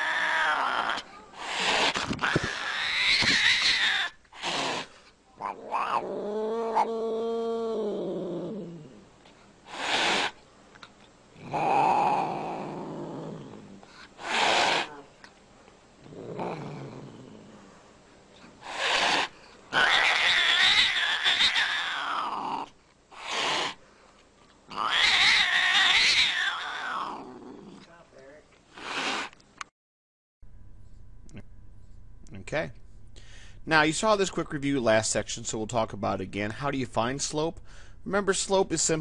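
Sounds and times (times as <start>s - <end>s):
cat growling and yowling: 0.0s - 9.1s, 11.4s - 15.1s, 16.0s - 17.6s, 18.7s - 23.8s, 24.7s - 27.9s.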